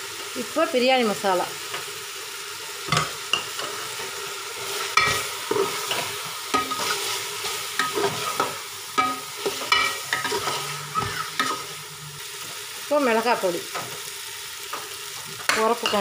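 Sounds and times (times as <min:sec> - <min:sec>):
frying sizzle: 0:00.0 - 0:16.0
metal spatula scraping a pot: 0:04.7 - 0:12.6.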